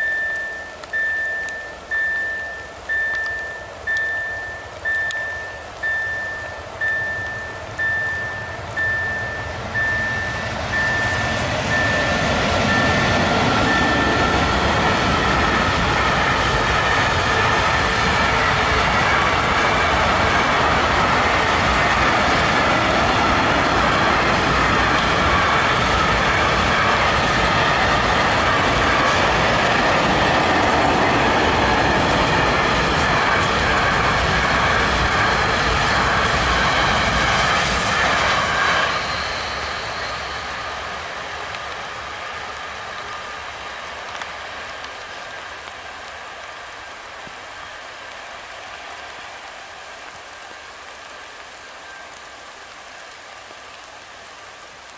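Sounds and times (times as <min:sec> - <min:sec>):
on-off beeping tone: 0:00.0 - 0:15.7
faint ringing whine: 0:00.0 - 0:15.8
train wheels rumbling on rails: 0:00.0 - 0:54.1.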